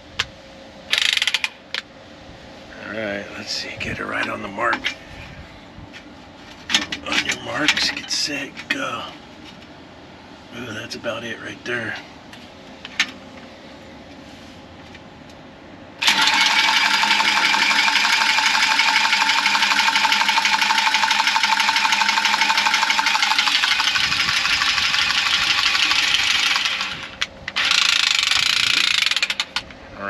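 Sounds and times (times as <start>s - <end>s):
tubing cutter whirring: 16.0s - 29.6s.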